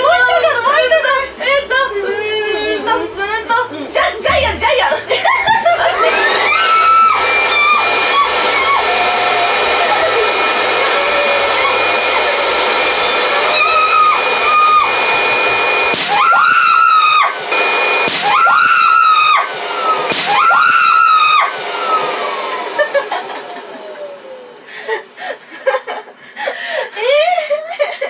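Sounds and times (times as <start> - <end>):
electric blower whine: 5.2 - 25.2
women screaming: 5.6 - 24.2.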